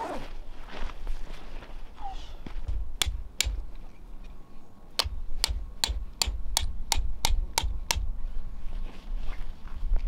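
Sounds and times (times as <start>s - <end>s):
hammer striking tent peg: 2.7s - 3.7s, 5.0s - 8.1s.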